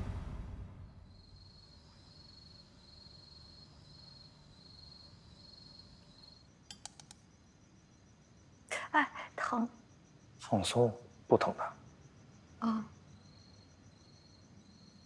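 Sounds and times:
cricket chirping faintly: 0:00.0 - 0:15.0
sharp clicks: 0:06.7 - 0:07.2.

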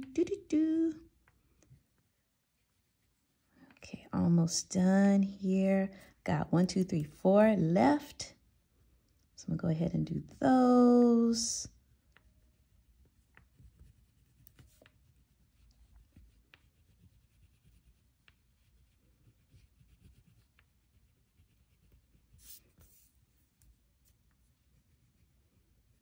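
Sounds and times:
crayon scratching on paper: 0:12.0 - 0:26.0.

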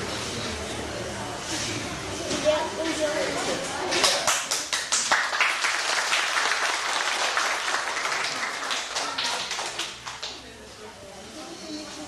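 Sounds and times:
audience applauding: 0:04.0 - 0:10.4.

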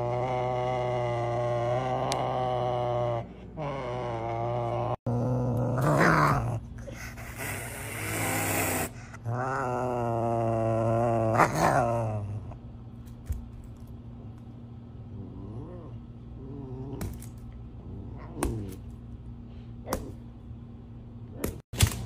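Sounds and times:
serval growling: 0:00.0 - 0:12.6, 0:15.1 - 0:17.1.

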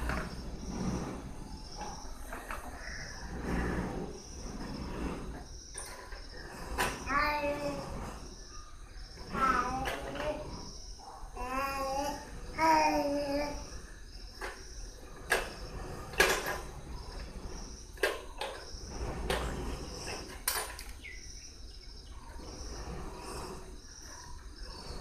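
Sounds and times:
crickets chirping: 0:00.0 - 0:25.0
plastic toys knocking and clattering: 0:09.4 - 0:10.5, 0:14.4 - 0:16.6, 0:18.0 - 0:21.0.

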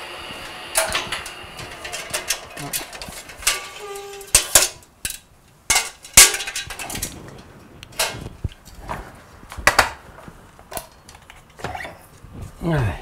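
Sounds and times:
metal reels clanking: 0:00.7 - 0:08.3.

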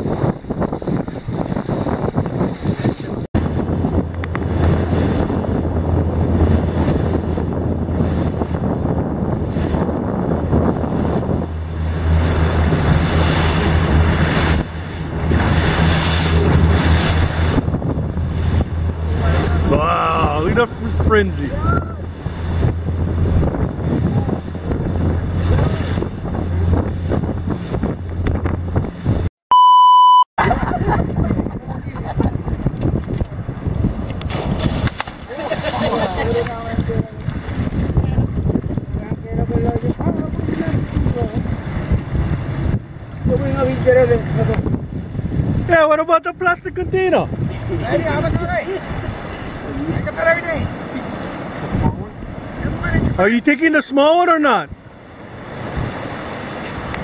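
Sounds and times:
wind buffeting microphone: 0:00.0 - 0:29.3, 0:30.4 - 0:53.6, 0:54.6 - 0:57.0
boat motor humming: 0:00.0 - 0:57.0
water rushing past hull: 0:00.0 - 0:57.0
loud single-pitch beep: 0:29.5 - 0:30.3.

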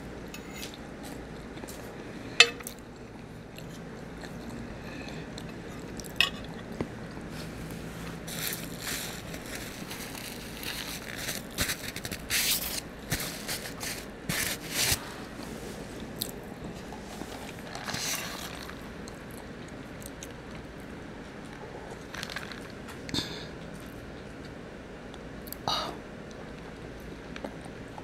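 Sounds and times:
close-up chewing: 0:02.7 - 0:07.3, 0:26.3 - 0:28.0
paper napkin crinkling: 0:07.4 - 0:15.2.

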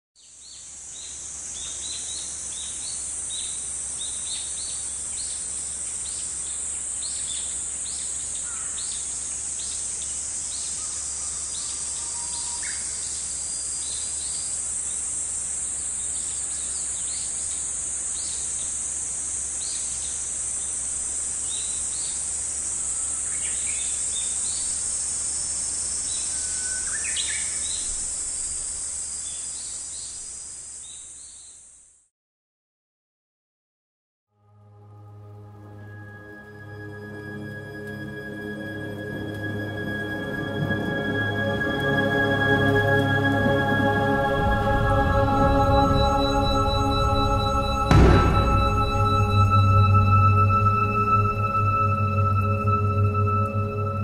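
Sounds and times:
insects droning: 0:00.4 - 0:31.9, 0:36.0 - 0:54.0
bird chirps: 0:26.0 - 0:30.2, 0:45.2 - 0:52.8.

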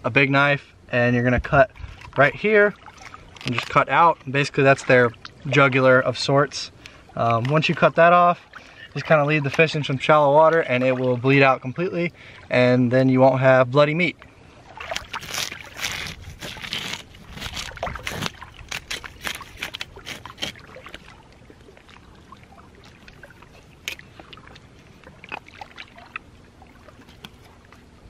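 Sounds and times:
small clicks and scrapes: 0:15.0 - 0:21.0.

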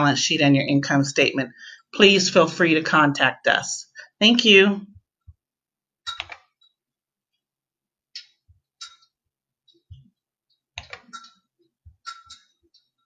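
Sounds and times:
mouse and keyboard clicks: 0:10.8 - 0:11.3.

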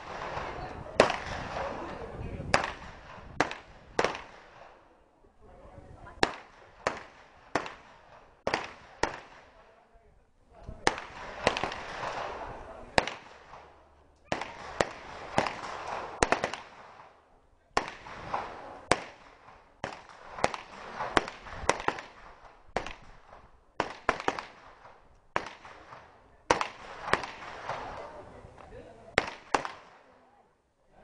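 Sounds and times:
gunshots with ringing echo: 0:00.0 - 0:01.9, 0:02.5 - 0:04.9, 0:06.2 - 0:09.6, 0:10.8 - 0:17.2, 0:17.8 - 0:28.0.

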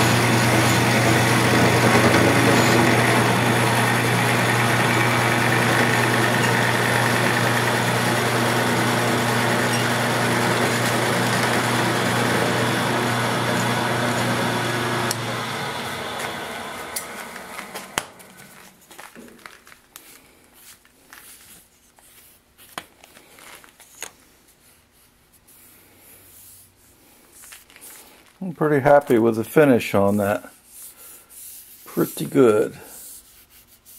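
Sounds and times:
milling machine running: 0:00.0 - 0:18.6.

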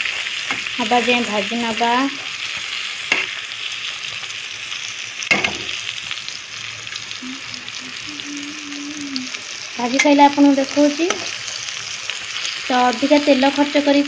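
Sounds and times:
vegetables sizzling in oil: 0:00.0 - 0:14.0
metal spatula knocking pan: 0:05.3 - 0:05.7.

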